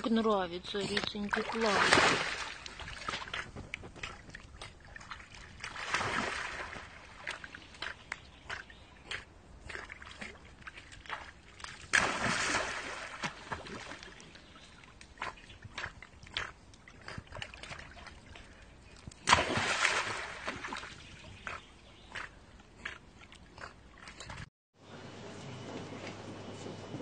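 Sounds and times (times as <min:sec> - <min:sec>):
dog splashing into water: 0:01.3 - 0:08.0, 0:09.8 - 0:14.3, 0:19.2 - 0:21.1.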